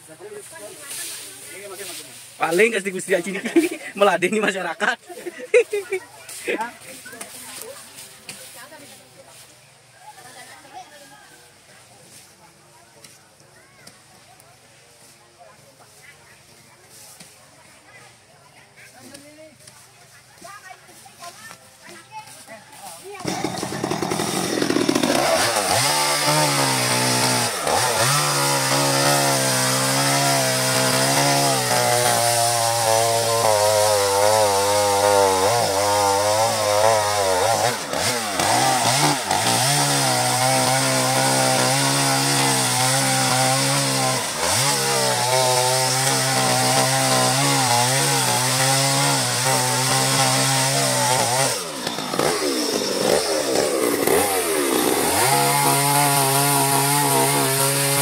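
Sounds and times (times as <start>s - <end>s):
chainsaw cutting wood: 23.0s - 58.0s.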